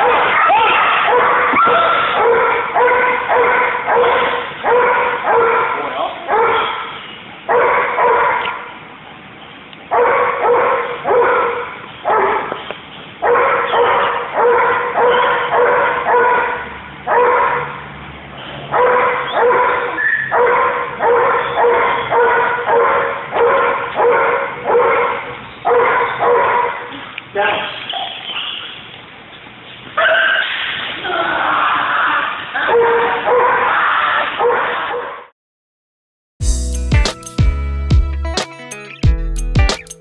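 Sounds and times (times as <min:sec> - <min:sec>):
dog barking with echo: 0:00.0 - 0:08.7, 0:09.9 - 0:12.6, 0:13.2 - 0:17.8, 0:18.7 - 0:26.9, 0:32.6 - 0:35.3.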